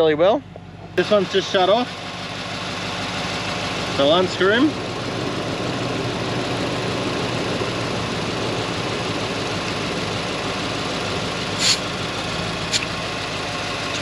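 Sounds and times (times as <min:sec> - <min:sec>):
vehicle engine idling: 0:00.0 - 0:14.0
air hissing from tyre: 0:11.4 - 0:12.0.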